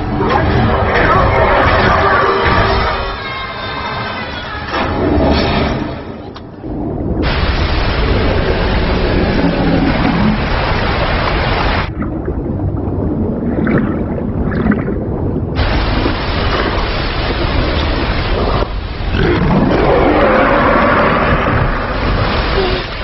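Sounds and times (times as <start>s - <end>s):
underwater bubbles: 6.4s - 23.0s
waterfall rushing: 7.2s - 11.9s, 15.6s - 23.0s
dinosaur roar: 19.1s - 22.7s.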